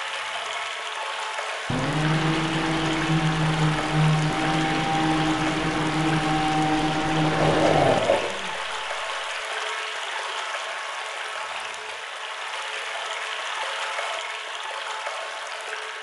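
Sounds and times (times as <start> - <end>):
pump humming: 1.7 - 9.2
water rushing into a well: 1.7 - 9.3.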